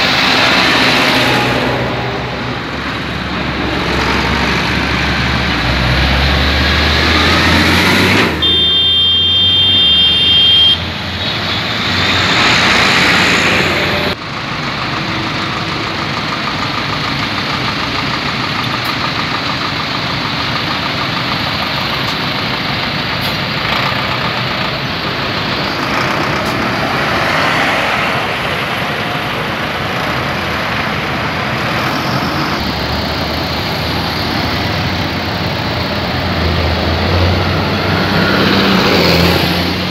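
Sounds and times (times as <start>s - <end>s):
road and tyre noise: 0.0s - 39.9s
tractor diesel engines passing: 0.0s - 39.9s
high steady tone: 8.4s - 11.7s.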